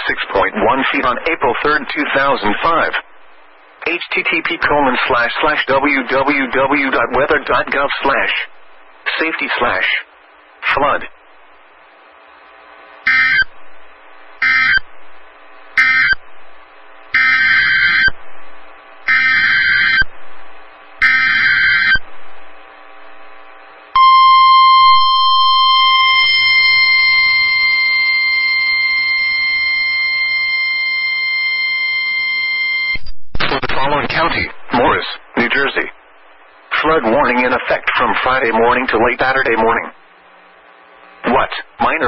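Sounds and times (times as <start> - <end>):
electronic data squawks: 13.0 - 13.6, 14.4 - 14.9, 15.8 - 16.2, 17.1 - 18.2, 19.0 - 20.1, 21.0 - 22.1, 24.0 - 33.0
steady warning alarm tone: 13.0 - 18.2, 19.0 - 22.5, 23.9 - 33.0.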